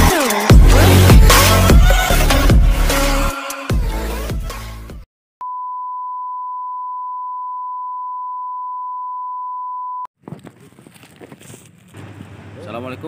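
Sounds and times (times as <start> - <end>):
electronic music: 0.0 - 4.6.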